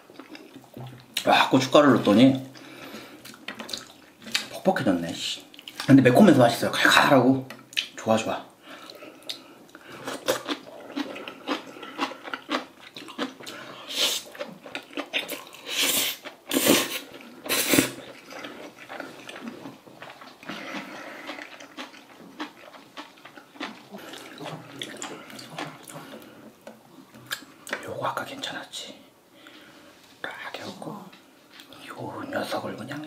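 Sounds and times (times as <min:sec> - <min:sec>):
chewing and slurping noodles: 0:08.8 - 0:27.4.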